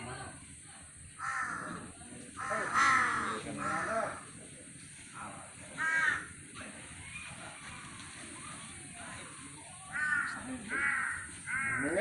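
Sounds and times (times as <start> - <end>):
harsh animal calls: 1.2 - 4.3, 9.9 - 12.0.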